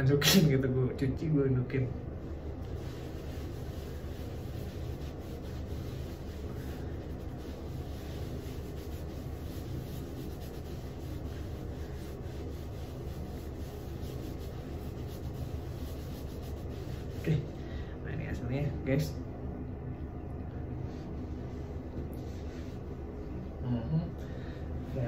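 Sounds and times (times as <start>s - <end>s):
towel rubbing wet hair: 2.3s - 17.6s, 21.0s - 23.6s.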